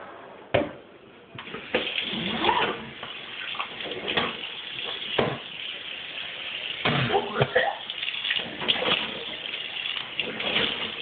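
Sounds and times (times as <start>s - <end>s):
tap running water into sink: 1.4s - 11.0s.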